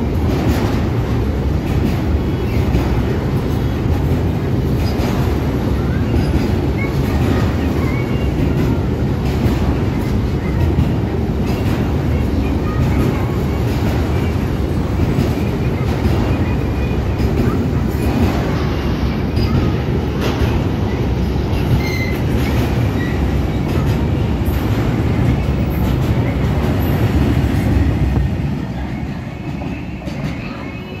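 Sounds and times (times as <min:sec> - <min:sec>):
train wheels rumbling on rail: 0:00.0 - 0:31.0
high wheel squeals: 0:21.6 - 0:22.2.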